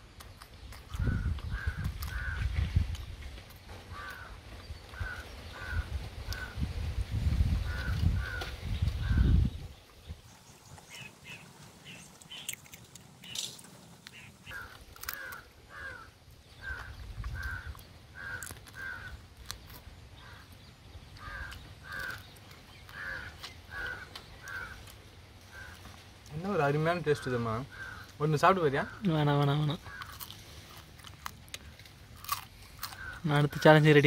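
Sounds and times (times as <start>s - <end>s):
short repeated bird calls: 10.6s - 20.6s, 21.2s - 26.0s
faint clicks of crab eaten: 11.9s - 15.4s.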